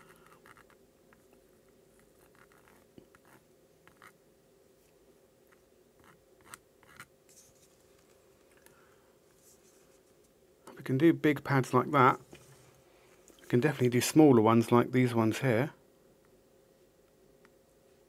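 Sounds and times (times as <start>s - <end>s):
faint room hum: 0.0s - 18.0s.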